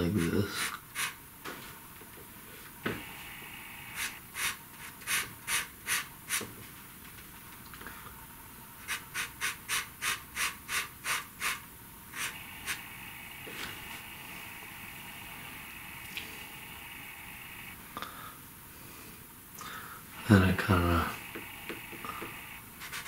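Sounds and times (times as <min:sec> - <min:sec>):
pencil scratching on paper: 0:22.8 - 0:23.0.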